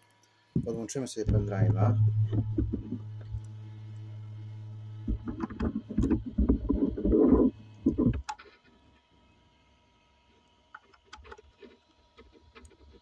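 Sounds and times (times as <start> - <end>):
projector electrical hum: 0.0 - 13.0
knocks and clicks of handling: 5.0 - 8.6.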